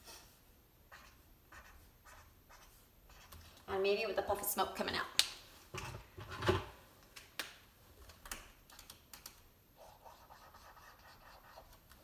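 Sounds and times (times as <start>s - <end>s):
marker squeaking on paper: 0.9s - 3.5s, 9.8s - 12.0s.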